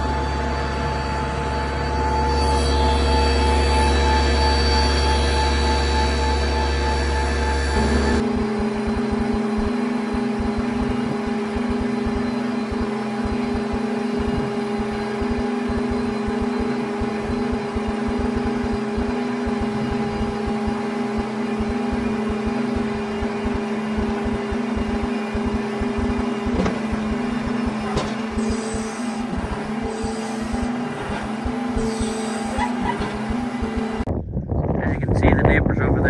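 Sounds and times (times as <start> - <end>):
tractor engine humming: 0.0 - 35.4
hydraulics folding: 26.0 - 33.4
low rumbles: 34.0 - 36.0.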